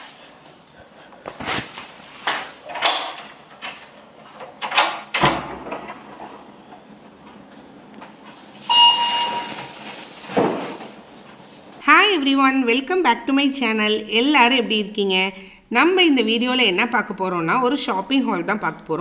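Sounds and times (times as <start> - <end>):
short steady beep: 8.7 - 9.6.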